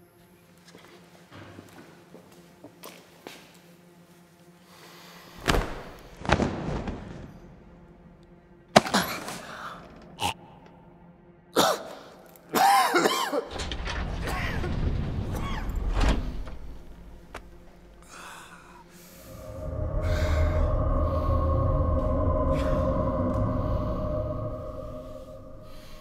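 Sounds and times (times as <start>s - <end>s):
droning music chord: 7.3s - 14.3s, 15.4s - 26.0s
low rumble: 13.5s - 26.0s.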